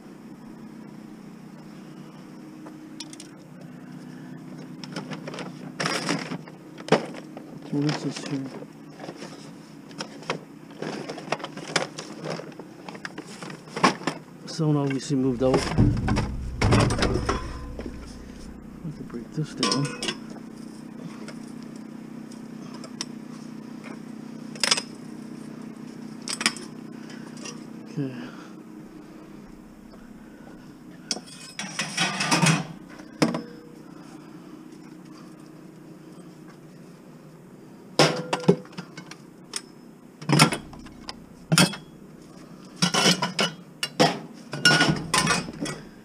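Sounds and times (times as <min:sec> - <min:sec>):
steady low hum: 0:14.3 - 0:37.9, 0:39.3 - 0:42.8, 0:45.0 - 0:46.0
low hum: 0:15.2 - 0:21.9, 0:28.7 - 0:31.1, 0:40.4 - 0:41.6
metal frame clanking: 0:15.3 - 0:20.2, 0:40.4 - 0:41.5.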